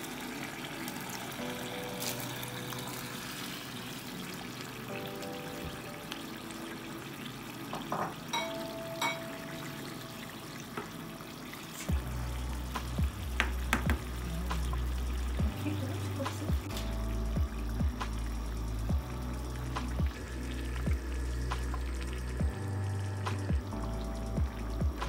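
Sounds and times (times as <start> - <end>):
faint background music: 0.0 - 25.0
spoon knocking against pot: 13.4 - 14.1.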